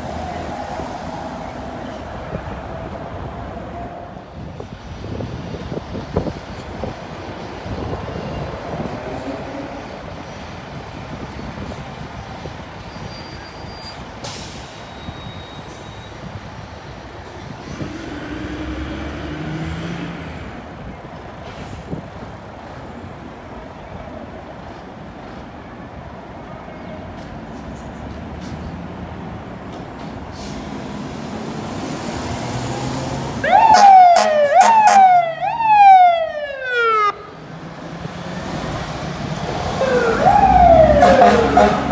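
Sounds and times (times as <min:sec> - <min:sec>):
fire engine siren wailing: 0:00.0 - 0:04.4, 0:33.3 - 0:37.5, 0:39.2 - 0:41.9
city street traffic: 0:00.0 - 0:41.9.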